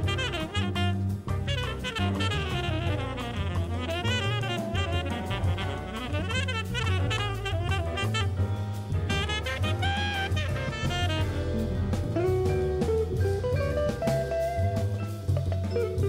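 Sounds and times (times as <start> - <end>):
saxophone playing fast lines: 0.0 - 11.9
jazz ensemble playing: 0.0 - 16.0.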